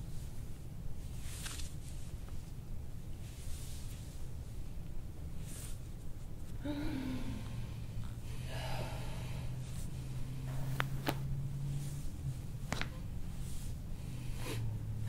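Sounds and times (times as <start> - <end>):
steady low hum: 0.0 - 15.0
breathy exhale: 6.6 - 10.7, 14.0 - 14.9.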